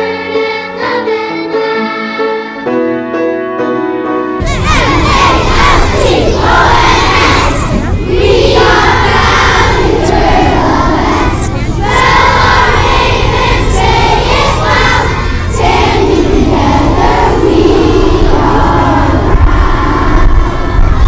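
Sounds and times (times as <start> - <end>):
children singing together: 0.0 - 2.7, 4.4 - 21.0
steady low rumble: 4.4 - 21.0.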